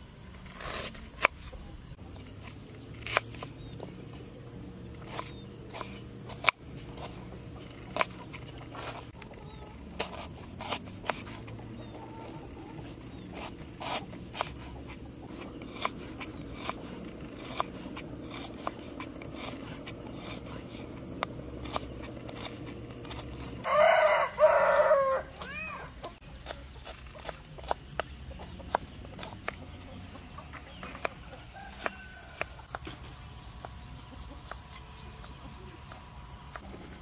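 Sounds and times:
knife chopping on wooden board: 5.0s - 9.2s, 9.9s - 11.9s, 12.8s - 29.6s, 30.7s - 33.0s.

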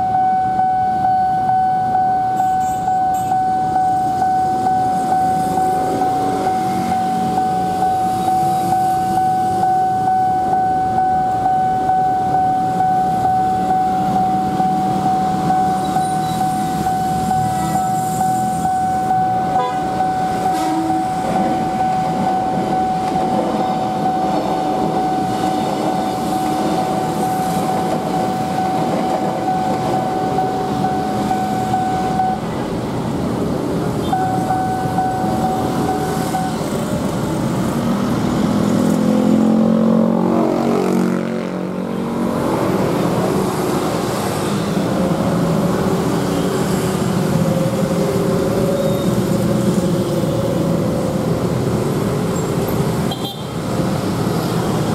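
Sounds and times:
level crossing alarm tone: 0.0s - 32.7s, 34.0s - 37.1s
motorcycles and cars revving: 20.5s - 54.9s.

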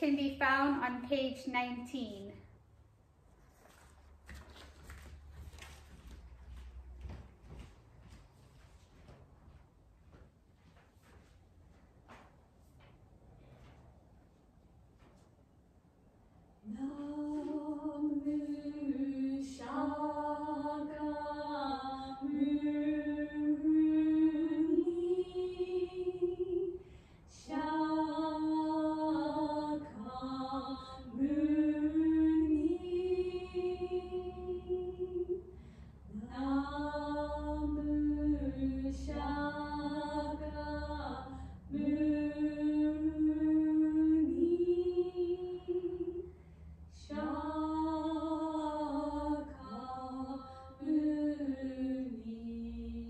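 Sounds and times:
woman chanting unaccompanied: 0.0s - 2.4s.

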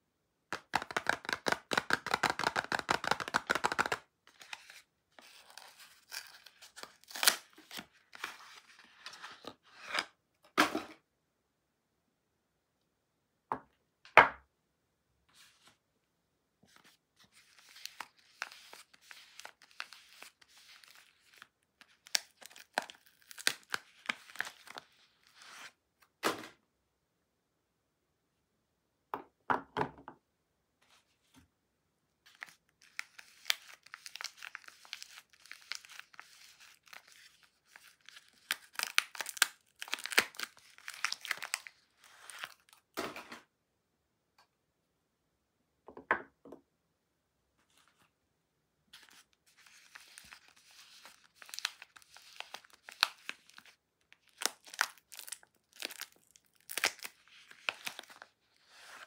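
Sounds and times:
wrappers crinkling and tearing: 17.6s - 24.8s, 32.4s - 42.7s, 49.0s - 59.0s.

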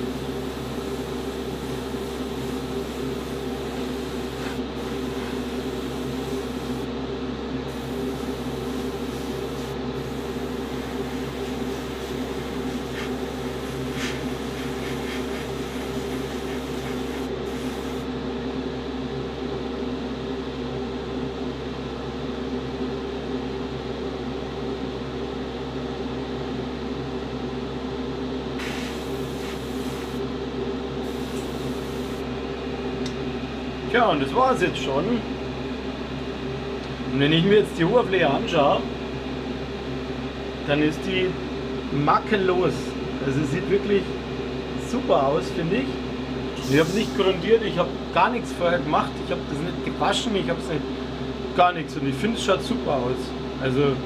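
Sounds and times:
airbrush hissing: 0.0s - 6.9s, 7.7s - 18.1s, 28.6s - 30.2s, 31.0s - 32.2s, 46.6s - 47.4s
motor hum: 0.0s - 6.9s.

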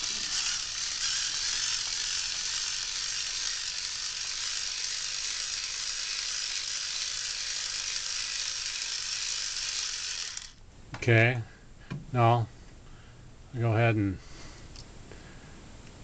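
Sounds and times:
screwdriver motor whirring: 0.0s - 10.6s.

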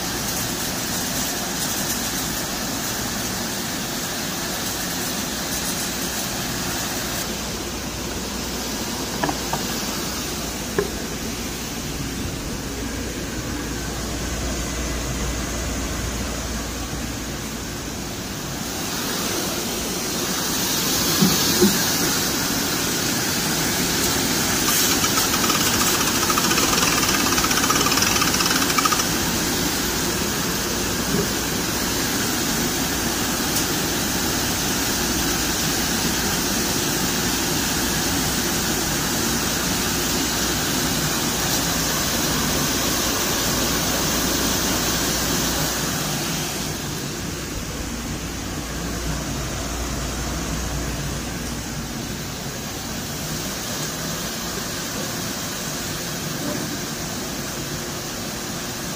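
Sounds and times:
crate washing machine running: 6.3s - 33.3s.

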